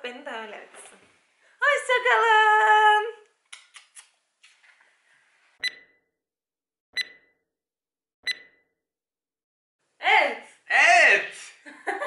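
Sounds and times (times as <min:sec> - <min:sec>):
sharp ticks with beeps: 0:05.6 - 0:06.0, 0:07.0 - 0:07.4, 0:08.2 - 0:08.7.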